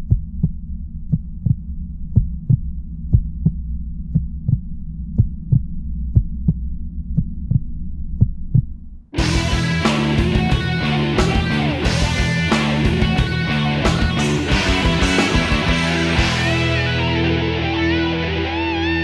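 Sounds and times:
heartbeat thumps: 0:00.0 - 0:09.7
rock music: 0:09.2 - 0:19.0.

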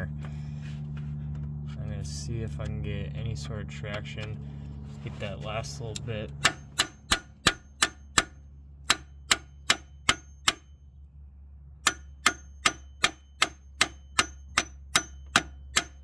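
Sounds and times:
hammer striking steel crowbar: 0:06.4 - 0:10.8, 0:11.8 - 0:16.0.

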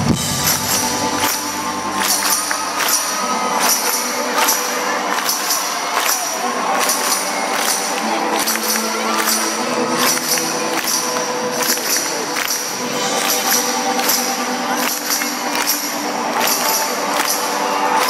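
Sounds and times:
bass: 0:00.0 - 0:04.6
tambourine beat: 0:00.0 - 0:18.0.

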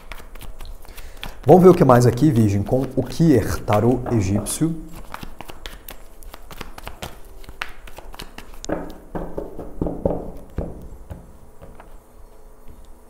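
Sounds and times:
cards being shuffled: 0:00.0 - 0:09.3.

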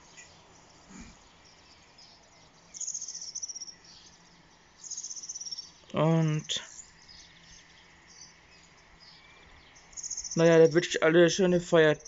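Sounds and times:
songbird trills: 0:00.0 - 0:12.0.

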